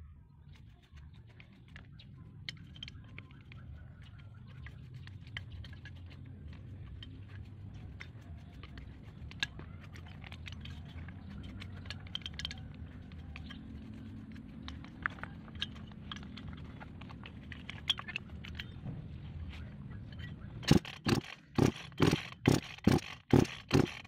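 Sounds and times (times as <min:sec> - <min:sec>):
metallic clicks of wrench and parts: 0:01.4 - 0:18.8.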